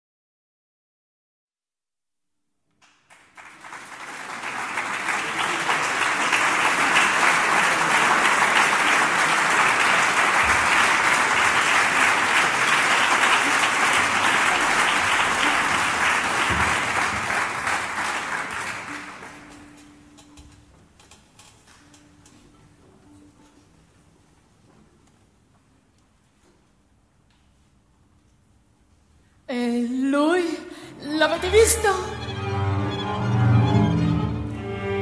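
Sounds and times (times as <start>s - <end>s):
audience applauding: 2.8s - 19.8s.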